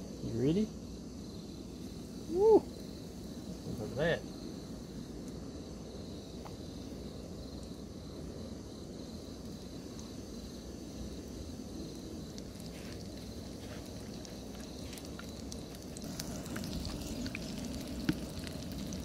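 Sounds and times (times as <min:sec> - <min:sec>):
high insect buzz: 0:00.0 - 0:19.0
fish sizzling in oil: 0:09.3 - 0:19.0
oil crackling: 0:09.3 - 0:19.0.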